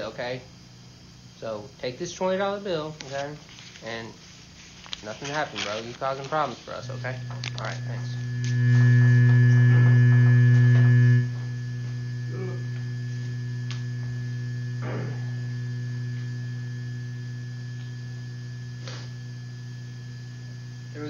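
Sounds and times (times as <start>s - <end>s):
low electrical hum: 0.0s - 21.0s
faint clicks and rustles: 3.0s - 8.5s.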